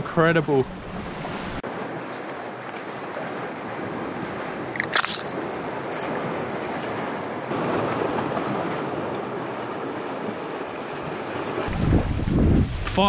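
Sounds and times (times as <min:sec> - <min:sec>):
waves washing against rocks: 0:01.7 - 0:11.7
wind on microphone: 0:11.5 - 0:13.0.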